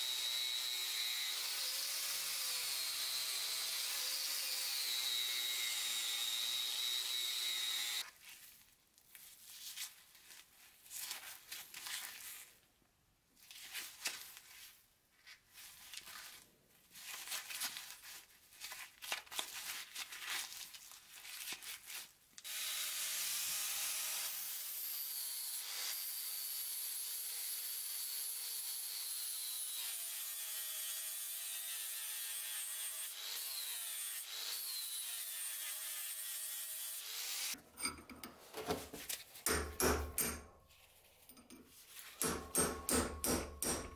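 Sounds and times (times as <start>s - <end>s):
wire brush grinder on metal: 0.0s - 8.0s, 22.4s - 37.6s
scraping and handling sounds: 8.0s - 12.7s, 13.4s - 22.2s, 37.6s - 39.5s, 40.5s - 42.2s.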